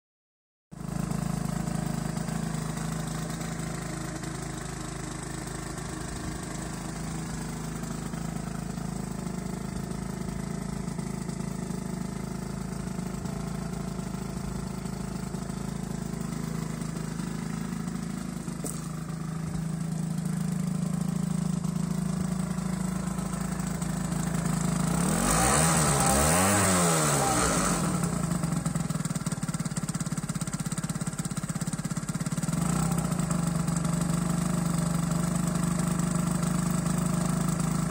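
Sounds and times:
scooter engine idling: 0.7s - 37.9s
engine revving: 21.9s - 28.9s, 32.5s - 33.4s.

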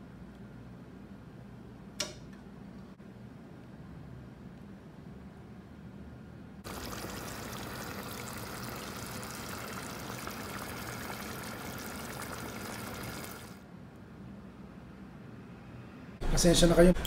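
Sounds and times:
stew bubbling in a pan: 6.6s - 13.6s.

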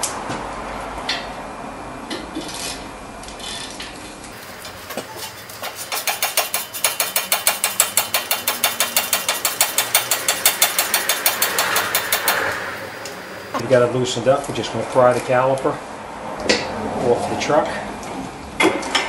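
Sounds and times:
ratchet pawl clicking rapidly: 5.6s - 12.8s.

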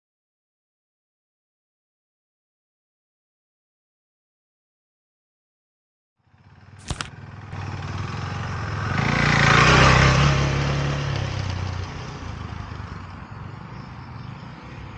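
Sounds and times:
motorcycle engine passing by: 6.2s - 14.9s
short sharp click: 6.8s - 7.1s.

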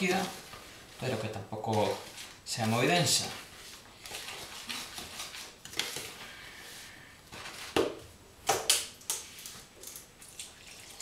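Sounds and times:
plastic bottle knocking and crackling: 7.7s - 8.8s.

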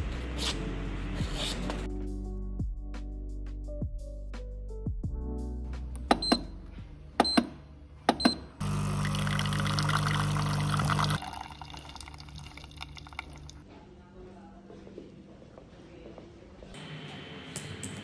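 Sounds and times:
pump buzzing hum: 8.6s - 11.3s
coffee streaming into glass: 8.6s - 13.6s.

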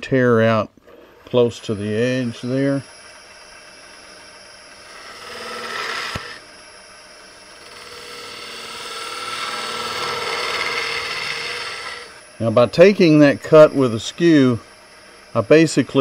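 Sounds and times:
lathe humming: 0.0s - 16.0s
chisel shaving wood: 4.2s - 6.4s, 7.4s - 12.2s.

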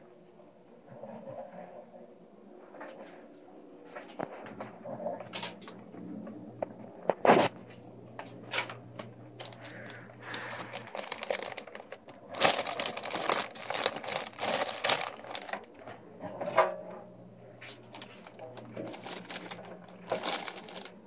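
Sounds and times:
low steady hum: 0.0s - 21.0s
plastic bag crinkling: 9.4s - 15.8s, 17.7s - 21.0s.

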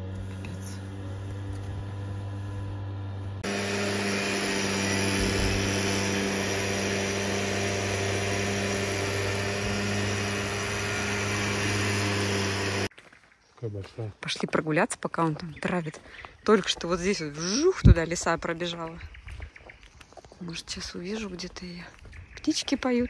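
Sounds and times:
mist sprayer engine running: 0.0s - 12.9s.

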